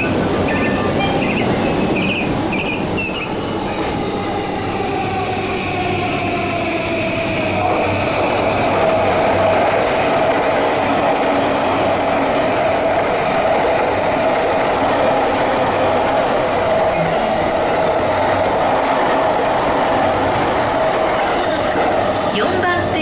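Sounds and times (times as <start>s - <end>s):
electric train rail noise: 0.0s - 23.0s
steady train tone: 0.0s - 23.0s.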